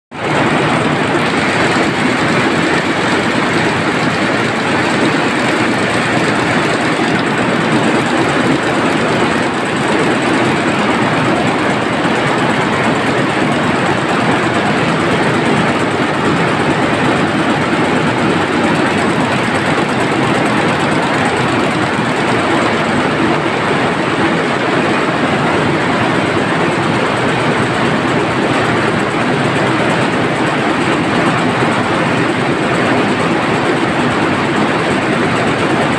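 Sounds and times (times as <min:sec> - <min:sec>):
weaving looms clattering: 0:00.2 - 0:35.9.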